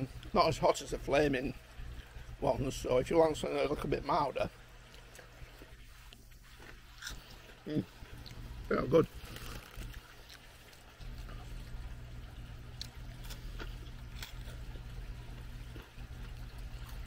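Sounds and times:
low steady hum: 0.0 - 17.0
man chewing crunchy snack: 4.9 - 17.0.

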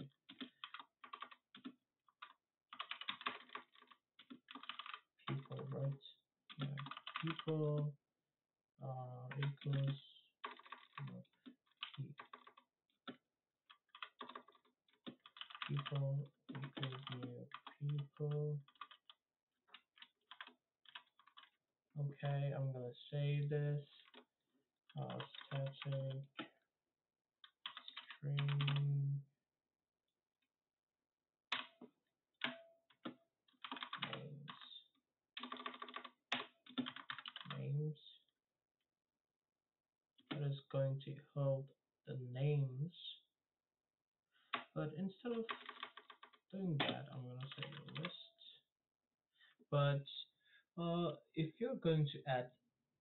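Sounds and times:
typing on computer keyboard: 0.0 - 5.8, 6.5 - 7.5, 9.3 - 12.6, 13.7 - 21.5, 25.1 - 26.5, 27.4 - 28.8, 31.5 - 31.8, 32.4 - 34.6, 35.4 - 37.6, 45.3 - 48.1.

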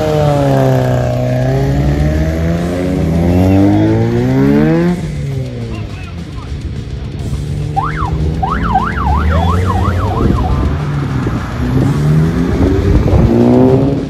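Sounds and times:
car engine accelerating: 0.0 - 14.0
siren-like sweeping tone: 7.8 - 10.9.

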